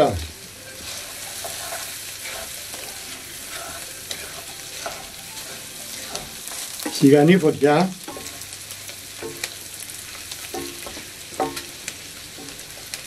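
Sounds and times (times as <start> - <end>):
food sizzling in oil: 0.0 - 13.0
wooden spoon scraping pan: 0.8 - 7.4.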